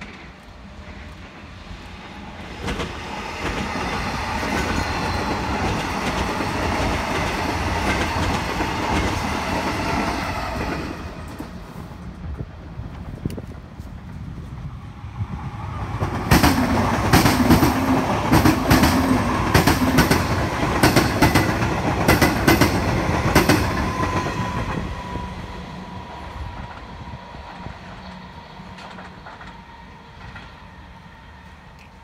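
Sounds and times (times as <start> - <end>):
electric train passing: 0.0 - 32.0
wheels clacking over rail joints: 16.0 - 24.8, 27.5 - 30.6.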